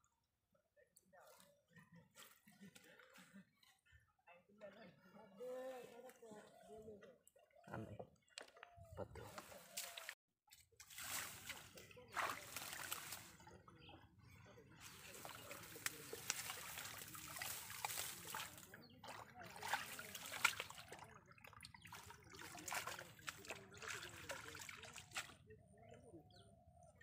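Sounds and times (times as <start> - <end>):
hands splashing in muddy water: 9.2 - 10.2, 10.8 - 13.4, 14.8 - 25.4
water trickling: 14.9 - 25.3.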